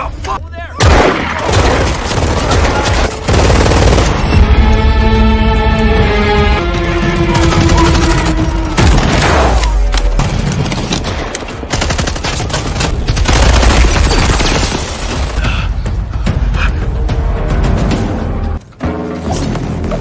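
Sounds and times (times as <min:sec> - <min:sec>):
film score music: 0:00.0 - 0:20.0.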